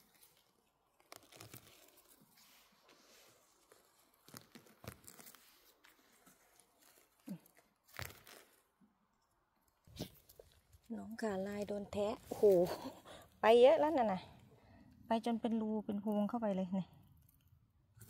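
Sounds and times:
twigs snapping: 0:00.0 - 0:02.4, 0:03.6 - 0:08.6
twigs and leaves crackling: 0:00.0 - 0:08.8, 0:09.6 - 0:14.7.

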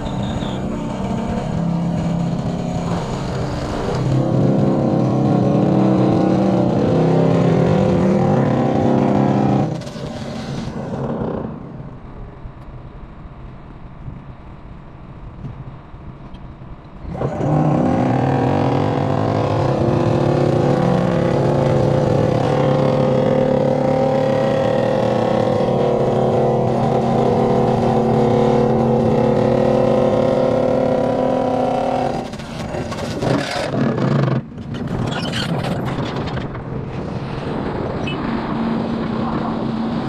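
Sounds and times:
vibratory pile driver humming: 0:00.0 - 0:12.1, 0:17.0 - 0:34.5
machine hum: 0:00.0 - 0:33.0
diesel engine: 0:00.0 - 0:40.0.

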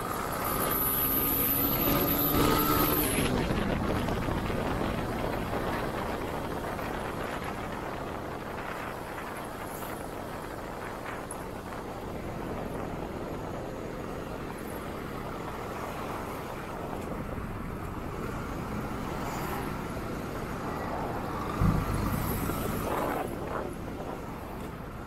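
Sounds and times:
passing traffic: 0:00.0 - 0:25.0
tyre road noise: 0:00.0 - 0:25.0
motorcycle engine: 0:21.4 - 0:23.6
low thump: 0:21.6 - 0:22.9.

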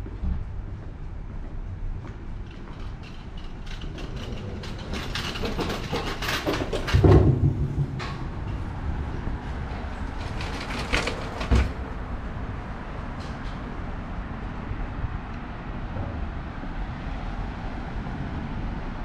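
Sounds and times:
metallic clanks and knocks: 0:02.4 - 0:12.0
heavy thud: 0:06.8 - 0:08.5.

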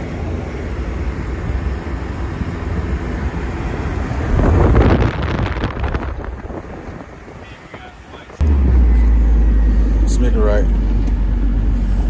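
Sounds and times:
car engine and road rumble: 0:00.0 - 0:12.0
wind buffeting microphone: 0:03.8 - 0:08.4.

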